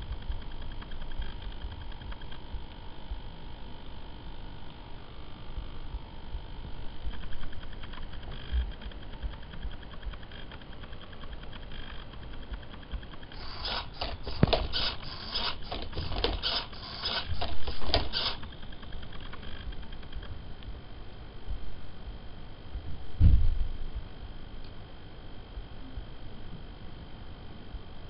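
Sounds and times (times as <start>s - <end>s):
servo motors whirring: 13.2s - 19.5s.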